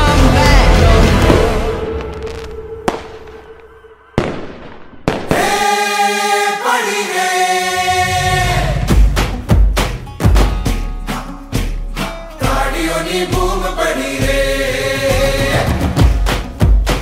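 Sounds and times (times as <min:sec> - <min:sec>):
firework bangs: 0:01.3 - 0:05.8
choir-like chord: 0:05.4 - 0:08.9
thumping beat: 0:08.9 - 0:10.9, 0:15.5 - 0:17.0.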